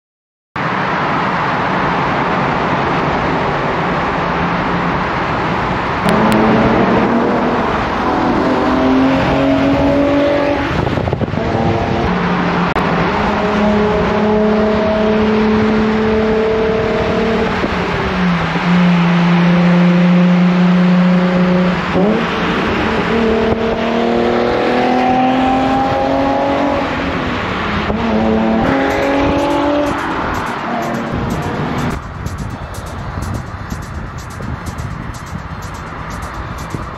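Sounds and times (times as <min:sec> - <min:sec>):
road noise: 0:00.6 - 0:36.9
car engine revving through gears: 0:06.0 - 0:32.0.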